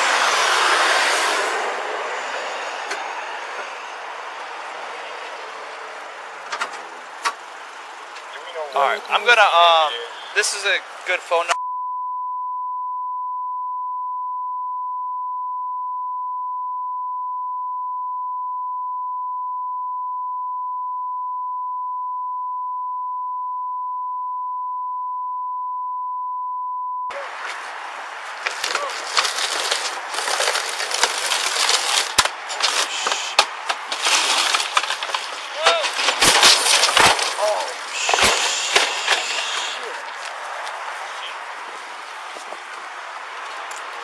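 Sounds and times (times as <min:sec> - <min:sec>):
freeway traffic: 0:00.0 - 0:11.6, 0:27.1 - 0:44.0
censor beep: 0:11.6 - 0:27.1.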